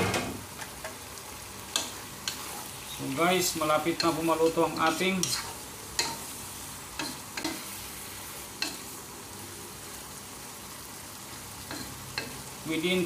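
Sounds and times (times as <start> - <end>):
food sizzling in a pan: 0.3 - 13.0
spatula tapping a pan: 6.0 - 6.3, 8.6 - 8.8.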